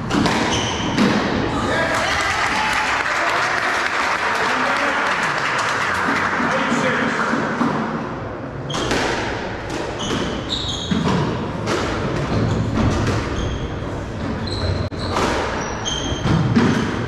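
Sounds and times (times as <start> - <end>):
squash ball cracking off rackets: 0.0 - 1.4, 8.7 - 13.4
shoes squeaking on wooden floor: 0.5 - 1.0, 10.0 - 11.4, 12.2 - 16.8.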